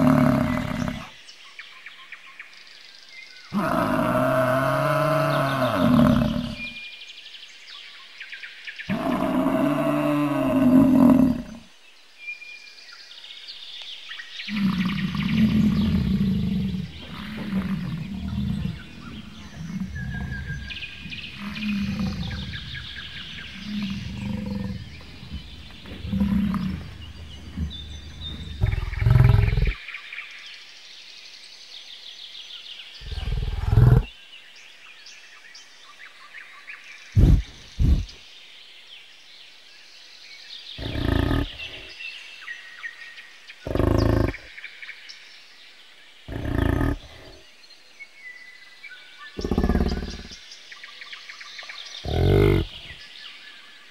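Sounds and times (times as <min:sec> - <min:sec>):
bison bellowing: 0:14.5 - 0:29.8, 0:40.8 - 0:41.7, 0:46.3 - 0:47.4, 0:52.0 - 0:53.0.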